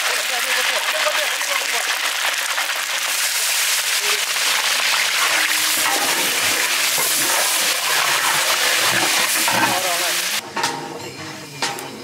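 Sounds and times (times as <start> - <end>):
water boiling in a pot: 0.0 - 10.4.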